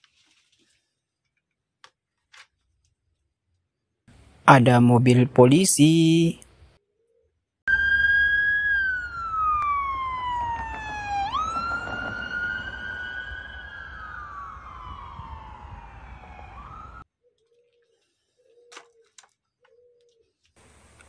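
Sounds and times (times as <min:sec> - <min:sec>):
police siren wailing: 0:07.7 - 0:17.1.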